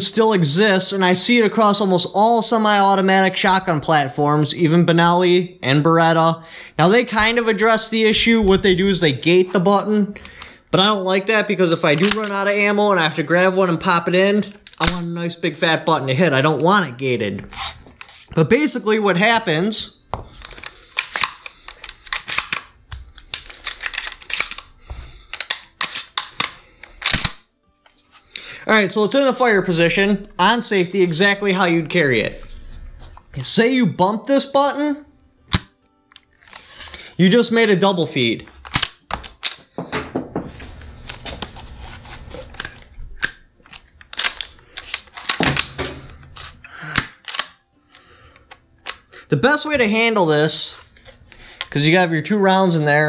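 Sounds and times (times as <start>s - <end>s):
metallic clicks of shotgun handling: 12.0s - 12.4s, 14.5s - 15.1s, 20.4s - 27.4s, 38.6s - 39.7s, 42.5s - 45.8s, 46.9s - 49.1s
shotgun action clicking: 14.6s - 15.0s, 38.7s - 39.7s.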